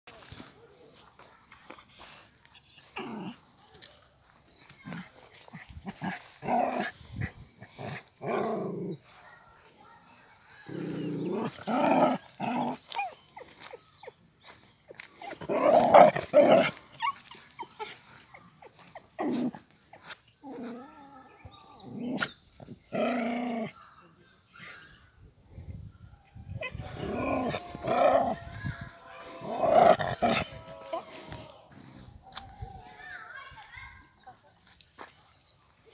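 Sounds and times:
dog barking and growling: 0:15.2 - 0:18.0, 0:26.6 - 0:31.1.

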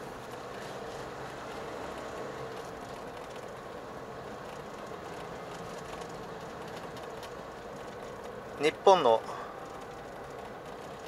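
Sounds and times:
car engine: 0:00.0 - 0:11.0
road noise inside car: 0:00.0 - 0:11.0.

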